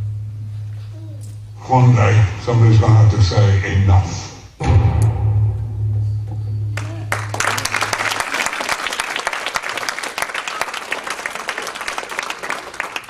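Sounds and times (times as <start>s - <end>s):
deep low music note: 0.0s - 8.0s
audience applauding: 6.8s - 13.0s.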